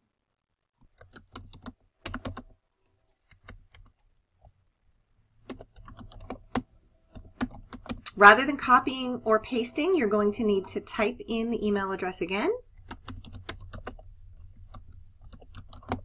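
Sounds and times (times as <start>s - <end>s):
keyboard typing: 0.8s - 4.5s, 5.4s - 8.2s, 12.7s - 16.0s.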